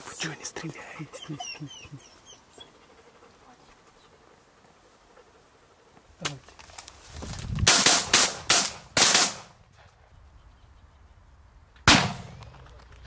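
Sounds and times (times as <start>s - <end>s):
shotgun shots with echo: 7.7s - 9.6s, 11.9s - 12.4s.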